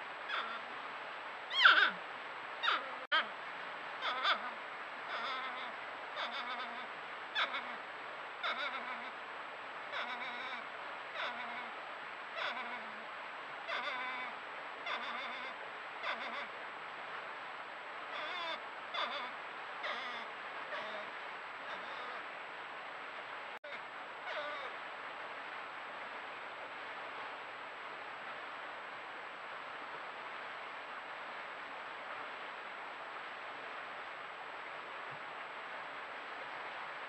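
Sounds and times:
steady hiss: 0.0 - 6.2, 15.4 - 37.0
porcupines whining calls: 1.5 - 2.0, 13.7 - 14.3.

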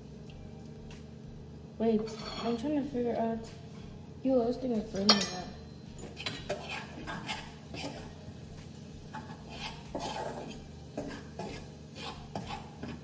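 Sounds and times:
metal utensils clinking and scraping: 2.0 - 2.7, 4.9 - 8.1.

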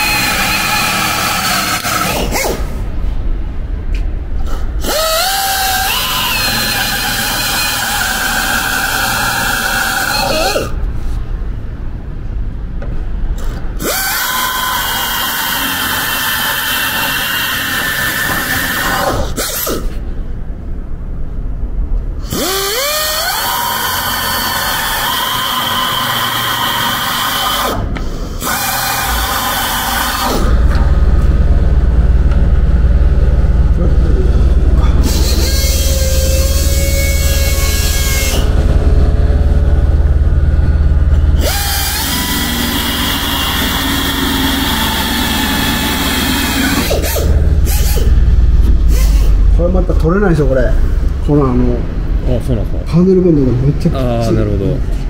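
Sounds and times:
power drill cutting metal: 0.0 - 2.7, 4.5 - 10.7, 13.8 - 20.0, 22.2 - 30.6, 35.0 - 38.6, 41.4 - 48.2.

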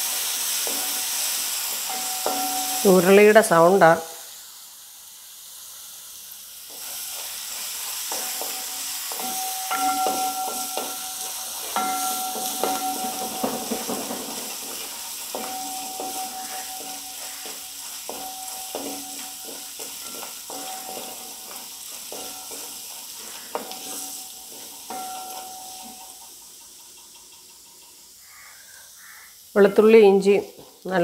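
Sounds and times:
food sizzling in oil: 0.0 - 31.0
spatula knocking metal pan: 1.9 - 2.8, 8.1 - 22.8, 23.5 - 26.0.

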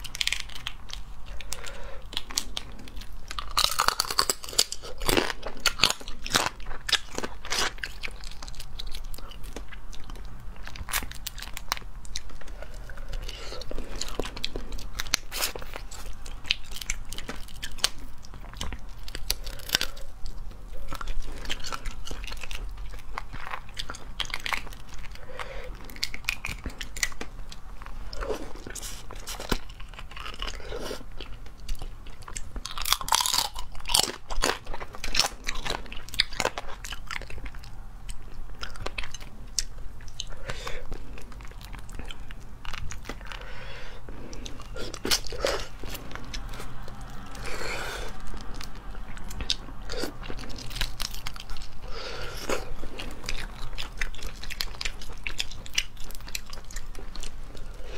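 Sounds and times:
crayfish shells cracking: 0.0 - 12.3
chewing: 0.0 - 57.9.

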